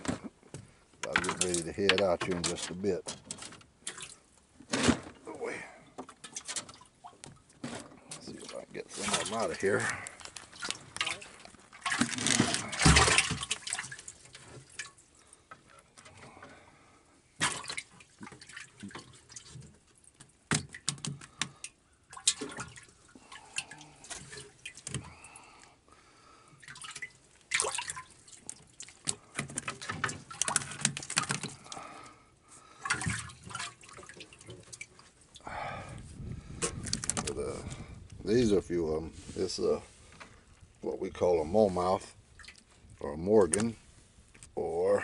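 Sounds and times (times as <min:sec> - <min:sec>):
water splashing and dripping: 0:01.0 - 0:04.5, 0:06.0 - 0:16.6, 0:17.3 - 0:25.6, 0:26.5 - 0:35.6, 0:41.7 - 0:45.0.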